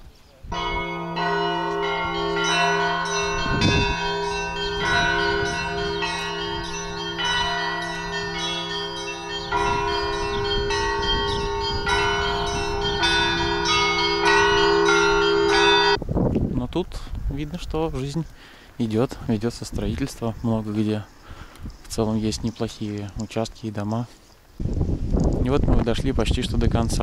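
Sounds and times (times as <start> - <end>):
church bells ringing: 0.5 - 16.0
hum of larger bells: 0.5 - 16.0.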